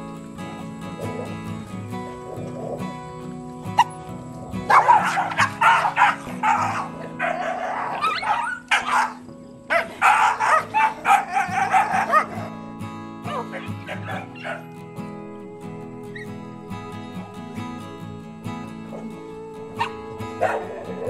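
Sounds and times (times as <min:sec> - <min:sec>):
background music: 0:00.0 - 0:21.0
dogs growling and barking: 0:00.8 - 0:14.8, 0:18.6 - 0:21.0.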